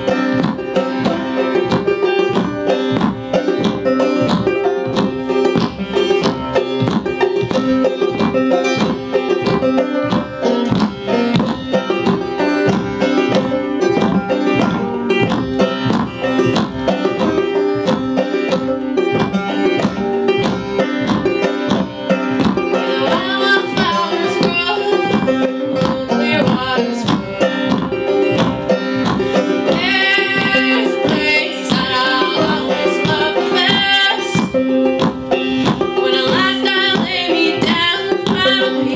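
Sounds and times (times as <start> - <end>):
acoustic string band playing: 0.0 - 38.9
people singing: 29.3 - 34.4.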